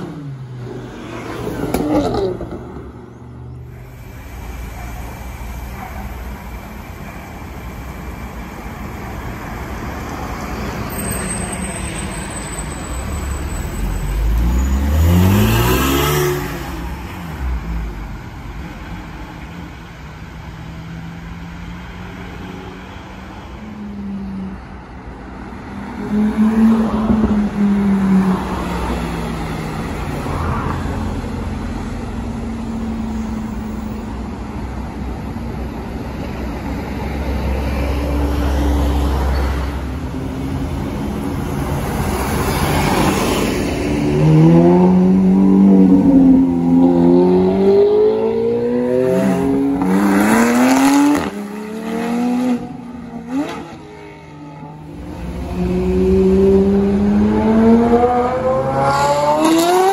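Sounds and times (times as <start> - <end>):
street traffic: 0.0 - 59.9
car engine passing: 13.1 - 17.7, 37.7 - 59.9
car engine revving: 54.9 - 59.9.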